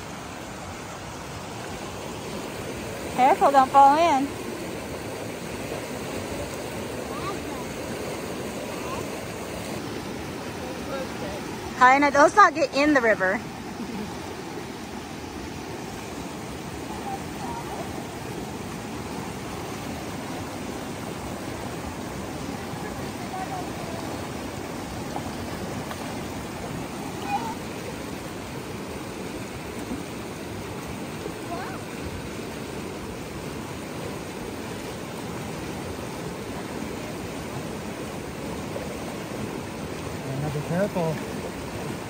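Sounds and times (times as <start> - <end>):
stream rushing over rocks: 0.0 - 42.0.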